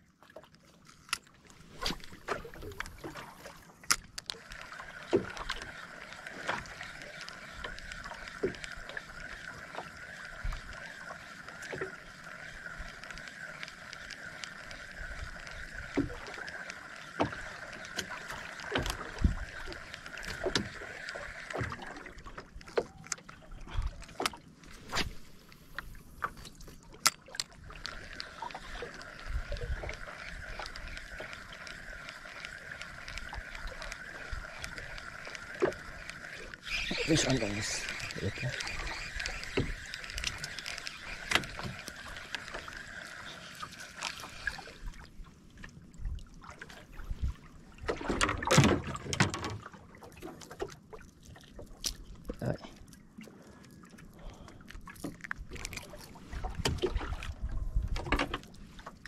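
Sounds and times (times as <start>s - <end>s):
fishing reel whirring: 4.4s - 21.6s, 27.8s - 44.8s
clicks and knocks on boat: 47.8s - 51.0s, 54.8s - 58.6s.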